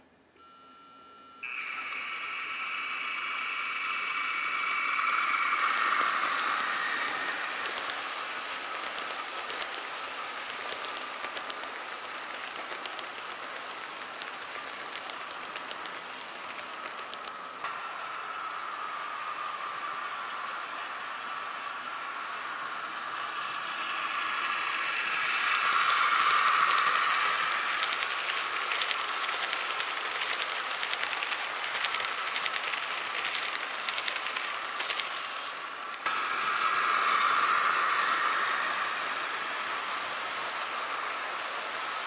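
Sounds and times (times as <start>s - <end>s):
model train motor whine: 1.4s - 42.0s
wheels clicking over rail joints: 6.0s - 17.7s, 25.0s - 38.2s.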